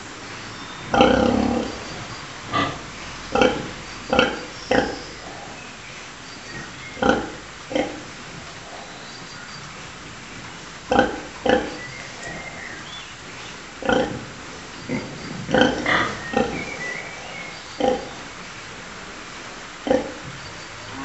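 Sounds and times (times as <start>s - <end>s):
sow grunting: 0.7s - 5.7s.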